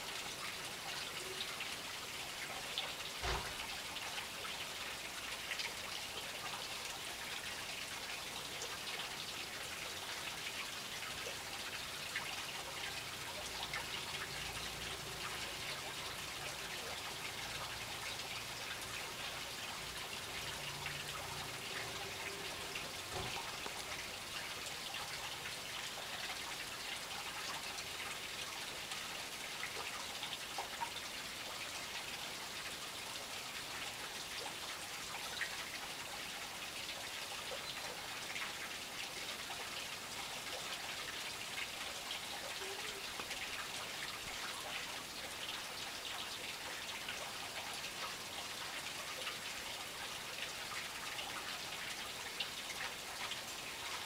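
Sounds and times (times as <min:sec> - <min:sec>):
fountain water trickling and splashing: 0:00.0 - 0:54.0.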